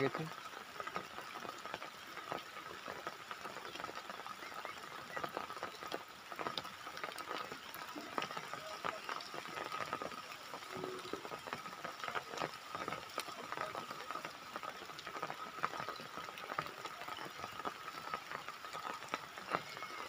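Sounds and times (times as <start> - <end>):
rain falling: 0.0 - 20.0.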